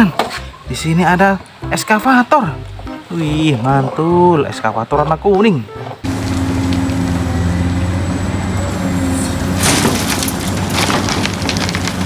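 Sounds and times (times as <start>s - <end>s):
excavator diesel engine running: 6.0s - 12.0s
soil crashing into truck bed: 8.9s - 12.0s.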